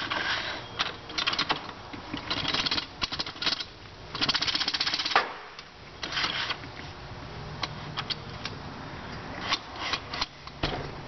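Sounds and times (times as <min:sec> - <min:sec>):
metal scrape: 0:00.0 - 0:00.8, 0:06.0 - 0:06.6, 0:09.4 - 0:10.4
metallic clicking and rattling: 0:00.8 - 0:06.6.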